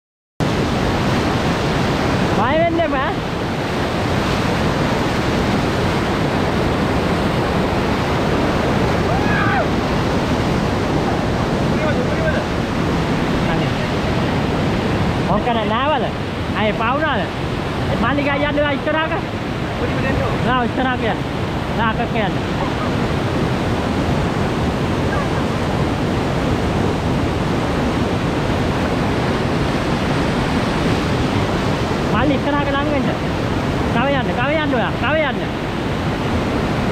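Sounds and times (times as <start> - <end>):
rapids rushing around raft: 0.4 - 36.9
person shouting: 9.0 - 9.7.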